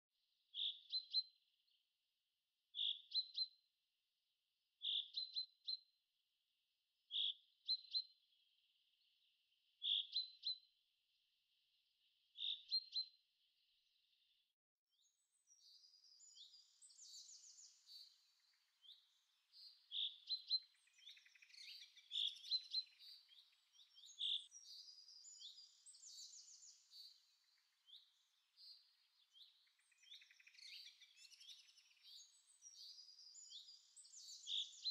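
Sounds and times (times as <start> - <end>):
bird chirping: 15.0 - 34.9
birds chirping and trilling: 15.0 - 34.9.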